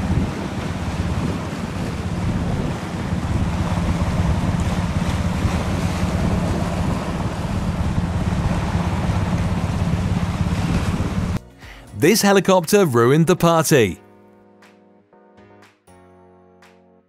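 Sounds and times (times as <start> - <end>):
wind buffeting microphone: 0.0 - 11.4
speedboat engines: 0.0 - 13.9
helicopter rotors droning: 0.4 - 11.4.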